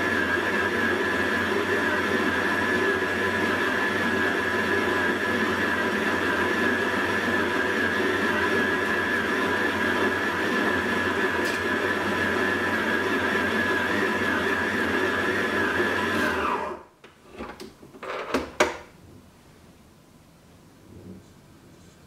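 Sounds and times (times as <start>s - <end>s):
stand mixer motor whine: 0.0s - 17.0s
clicks and knocks: 17.0s - 19.0s.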